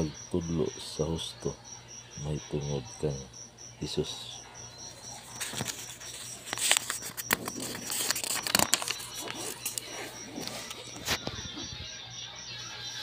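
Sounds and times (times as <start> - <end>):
cricket chirping: 0.0 - 13.0
paper leaflet rustling: 5.2 - 11.3.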